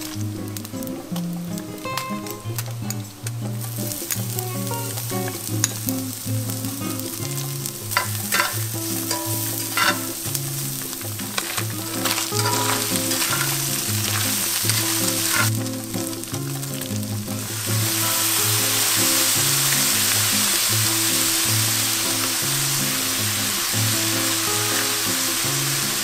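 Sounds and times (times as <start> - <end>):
background music: 0.0 - 26.0
food sizzling in a skillet: 0.0 - 26.0
metal spatula scraping a pan: 7.1 - 15.8.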